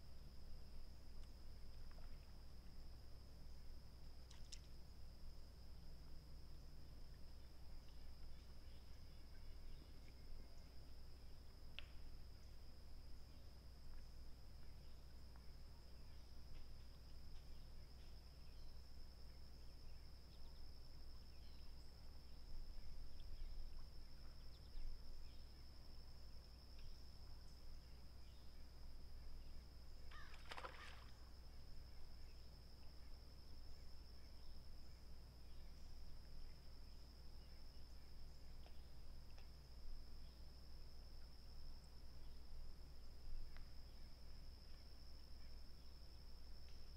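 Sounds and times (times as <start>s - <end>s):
insect trill: 0.0s - 46.9s
faint bird chirps: 14.6s - 22.0s, 27.8s - 31.3s.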